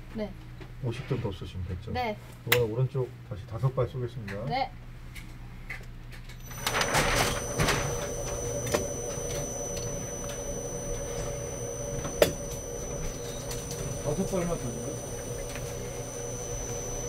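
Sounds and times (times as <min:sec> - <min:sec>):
target carrier whirring: 0:06.4 - 0:17.0.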